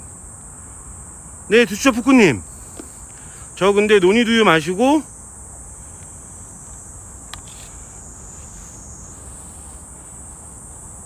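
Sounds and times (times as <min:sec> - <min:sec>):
high-pitched insect chorus: 0:00.0 - 0:11.0
faint click: 0:07.3 - 0:07.7.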